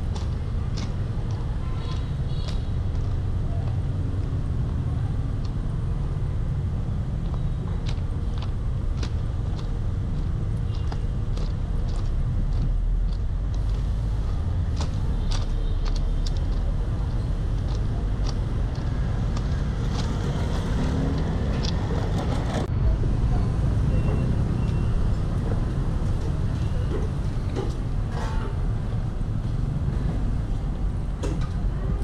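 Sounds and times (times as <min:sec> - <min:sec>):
city street traffic rumble: 0:00.0 - 0:32.0
motorbikes: 0:00.0 - 0:32.0
footsteps on gravel: 0:07.2 - 0:22.6.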